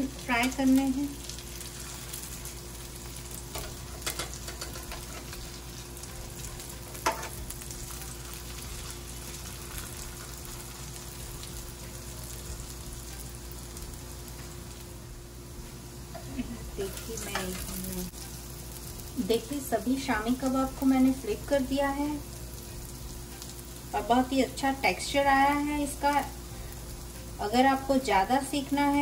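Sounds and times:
patties sizzling in oil: 0:00.0 - 0:29.0
metal spatula clicking on pan: 0:03.6 - 0:05.2.

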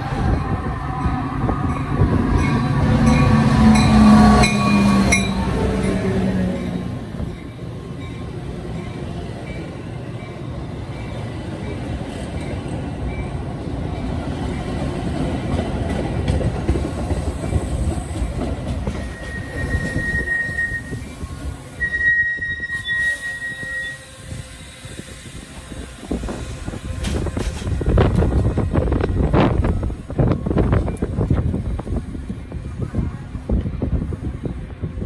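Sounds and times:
train wheels rumbling on rail: 0:00.0 - 0:35.0
high wheel squeal: 0:18.9 - 0:24.6.

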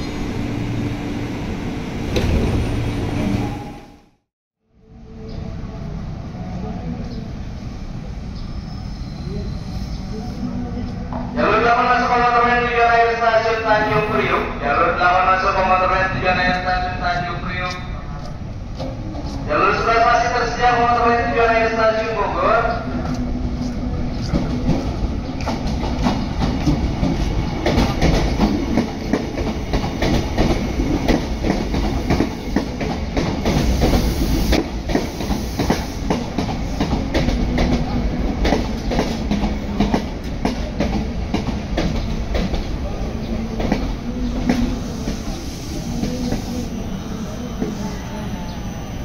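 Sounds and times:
train rumble: 0:05.0 - 0:49.0
train wheels clattering: 0:23.1 - 0:42.7.

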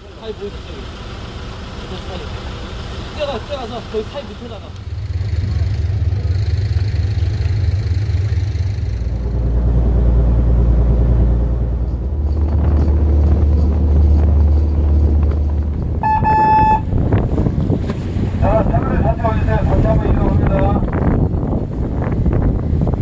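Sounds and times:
boat engine rumbling: 0:00.0 - 0:23.0
short high beep: 0:16.0 - 0:16.9.

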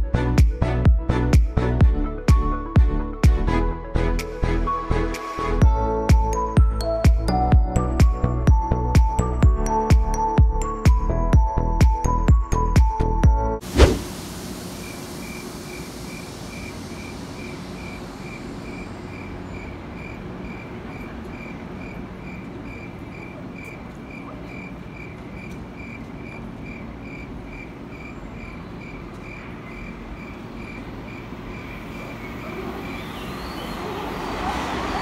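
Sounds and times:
electric train humming: 0:13.6 - 0:24.1, 0:24.7 - 0:35.0.

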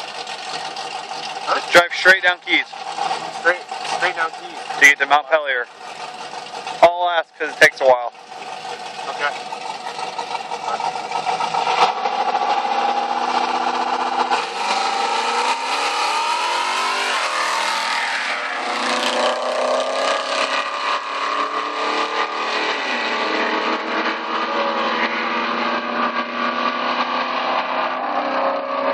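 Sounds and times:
car engine accelerating hard: 0:00.0 - 0:28.9.

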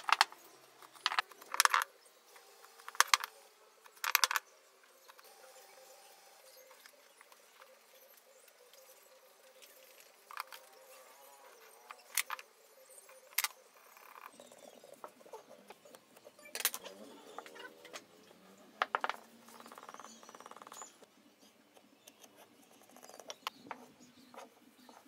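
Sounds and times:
marking tools clicking and tapping: 0:00.0 - 0:01.9, 0:02.8 - 0:04.4, 0:21.7 - 0:25.0.

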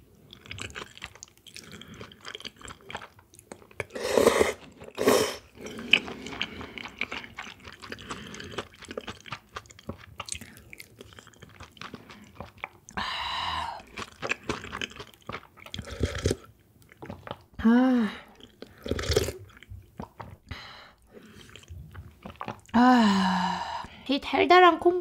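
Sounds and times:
wet chewing with crunches: 0:00.1 - 0:13.1, 0:13.8 - 0:17.6, 0:18.3 - 0:22.8
slurp: 0:03.8 - 0:12.6, 0:18.4 - 0:20.5.

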